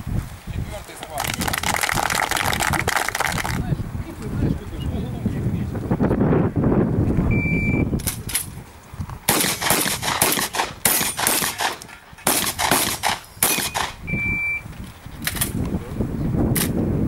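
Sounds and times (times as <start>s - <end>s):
shot timer beep: 7.3s - 7.9s, 13.7s - 14.6s
shotgun shots: 9.3s - 14.0s.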